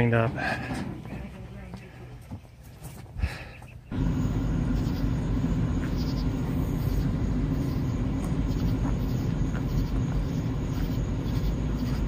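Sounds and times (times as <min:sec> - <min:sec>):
car road and engine noise: 0:03.8 - 0:12.0.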